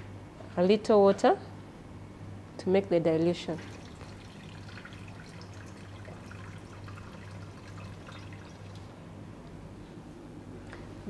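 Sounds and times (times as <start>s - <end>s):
water trickling into beaker: 3.6s - 8.9s.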